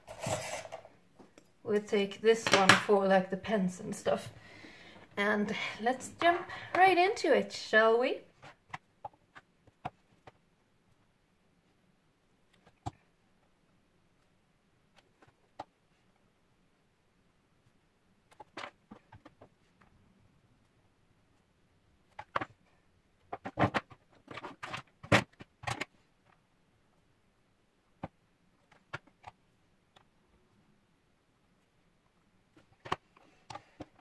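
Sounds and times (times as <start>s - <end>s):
plastic cases clicking and clattering: 22.0s - 22.6s, 23.2s - 26.4s.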